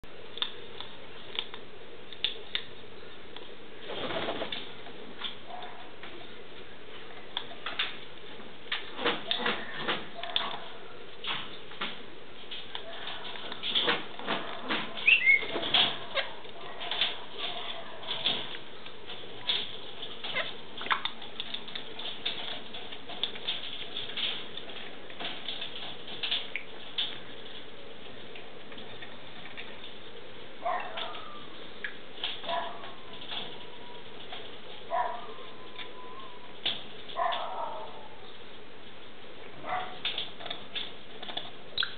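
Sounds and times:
parrots clicking and scratching: 0.3 - 41.9
parrot squeaks: 15.0 - 15.6
soft bird call: 15.0 - 15.6.

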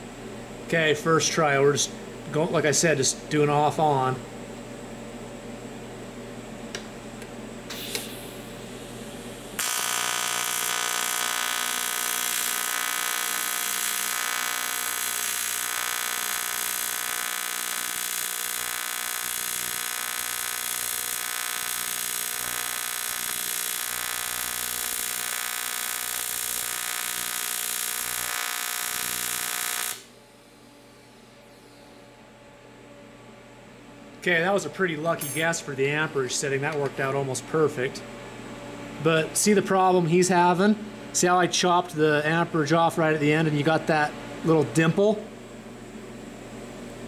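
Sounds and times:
welding arc buzz and hiss: 6.7 - 30.6.

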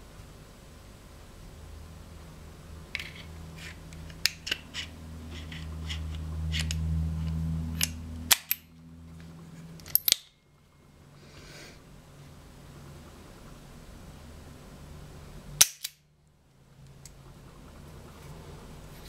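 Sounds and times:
low hum: 0.9 - 19.0
cartridges clicking into cylinder: 7.8 - 8.7, 9.8 - 10.4, 15.6 - 16.0
hammer cocking clicks: 15.6 - 16.0
revolver cylinder snapping shut: 15.6 - 16.0.

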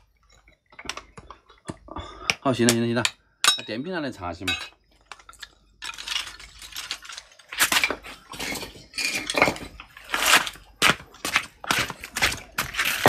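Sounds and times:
metal basin clinking and scraping: 4.4 - 10.6.

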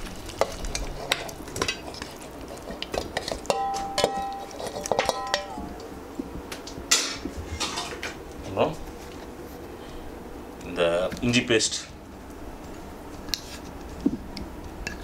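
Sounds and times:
steel bowl clinking on pot: 3.2 - 5.7
metallic ringing: 3.5 - 5.8.

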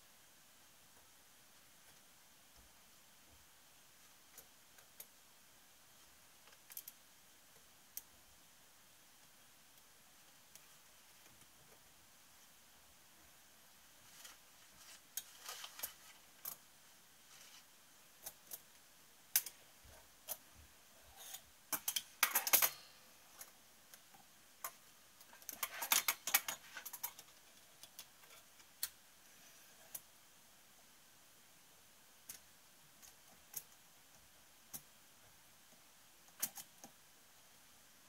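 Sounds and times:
metallic clicks and clinks: 21.2 - 23.5.

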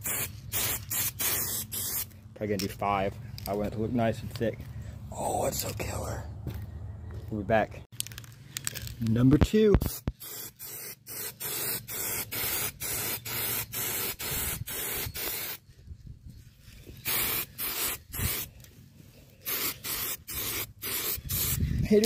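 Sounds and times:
spray can short hisses: 0.0 - 2.1, 9.8 - 15.6, 17.0 - 18.5, 19.5 - 21.6.

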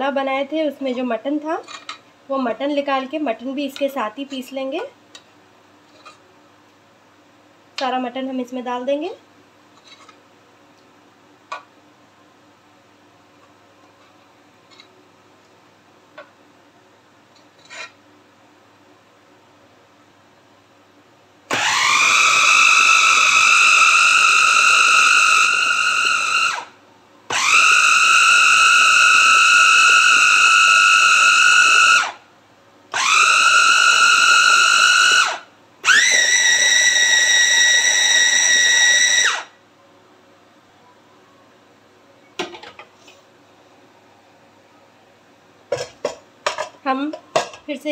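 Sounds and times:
electric chopper motor whining: 21.5 - 26.7, 27.3 - 32.1, 33.0 - 37.0.

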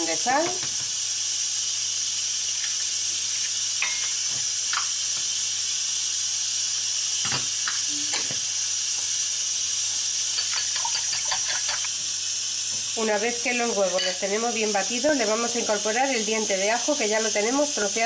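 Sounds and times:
pressure cooker steam hissing: 0.0 - 18.0
fork clinking against glass: 3.8 - 4.9, 10.4 - 11.9, 13.9 - 14.4.

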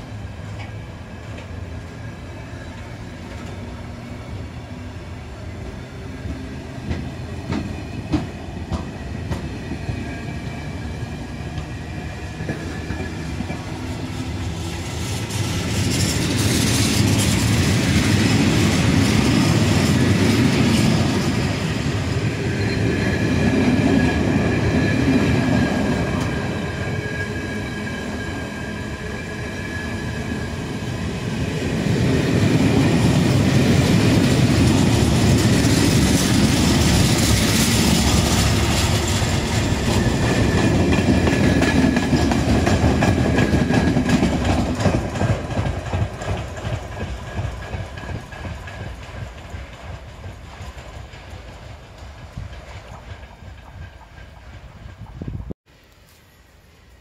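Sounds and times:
train wheels clacking over rail joints: 6.3 - 9.7, 33.1 - 55.5.

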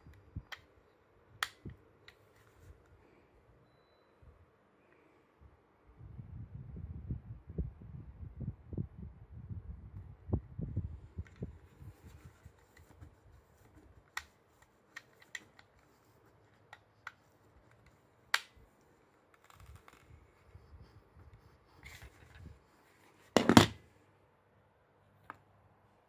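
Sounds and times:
phone handling bumps: 23.4 - 23.8.

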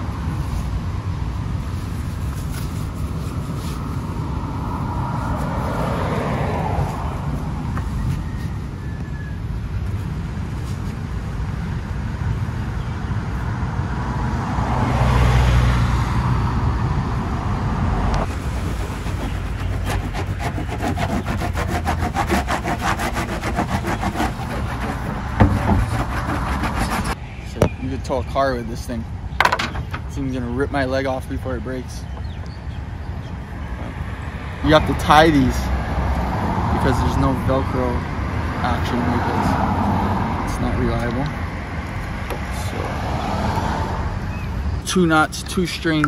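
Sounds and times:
vehicles passing: 0.0 - 46.0
rapid scratchy rubbing: 18.3 - 27.2.

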